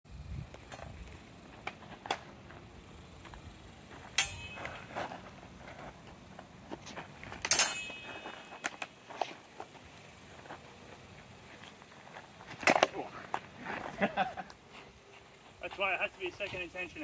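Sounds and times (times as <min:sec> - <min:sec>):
steel swords clashing: 0:04.1 - 0:05.1, 0:07.4 - 0:09.0.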